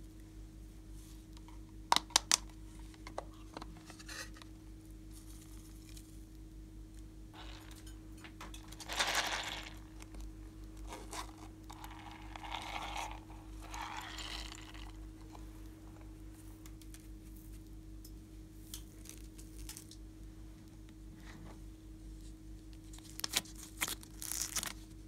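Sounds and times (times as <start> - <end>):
faint steady hum: 0.0 - 25.0
slime scraping and crinkling: 8.6 - 15.4, 22.9 - 24.9.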